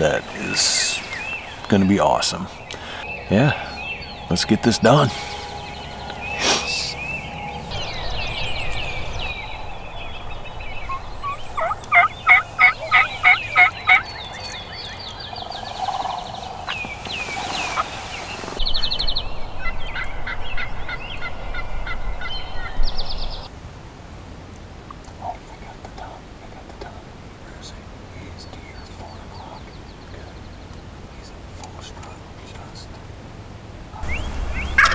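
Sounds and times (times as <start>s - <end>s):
small birds chirping: 0.0s - 23.5s, 24.9s - 33.1s, 33.9s - 34.9s
turkey yelping: 10.8s - 14.5s, 34.0s - 34.9s.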